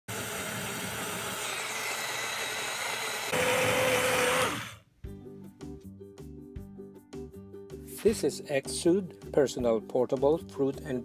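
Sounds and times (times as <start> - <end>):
blender whirring: 0.0 - 4.8
music: 4.4 - 11.0.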